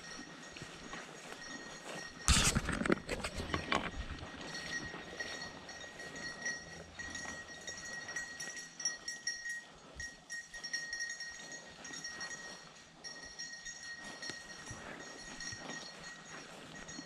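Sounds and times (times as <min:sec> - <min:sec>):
high-pitched ringing tone: 0:00.0 - 0:17.0
footsteps crunching through grass and leaves: 0:00.1 - 0:04.0.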